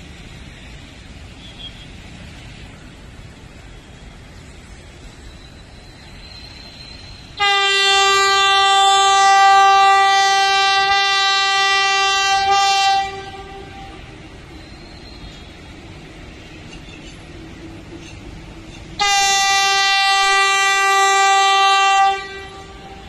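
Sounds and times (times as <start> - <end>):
approaching train running noise: 0.0 - 23.0
train horn long blast: 7.4 - 14.4, 19.0 - 23.0.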